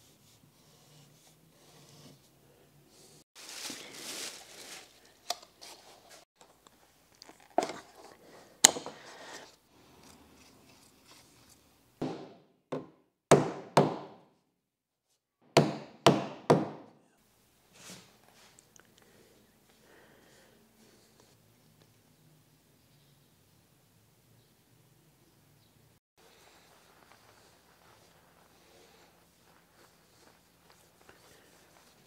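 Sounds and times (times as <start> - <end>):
plastic bag rustling: 3.4 - 6.2
hammer striking wooden board: 12.0 - 14.2, 15.6 - 16.9.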